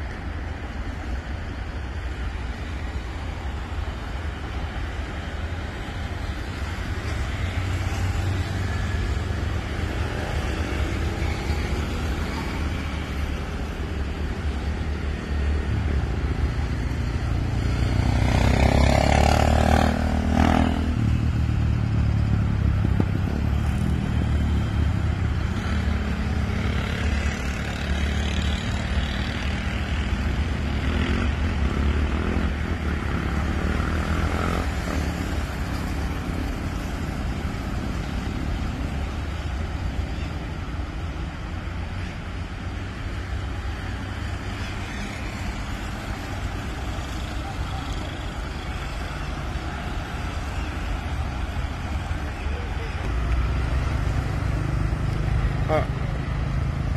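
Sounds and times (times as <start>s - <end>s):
cars and motorcycles passing: 0.0s - 56.9s
low rumble of engines and tyres: 0.0s - 56.9s.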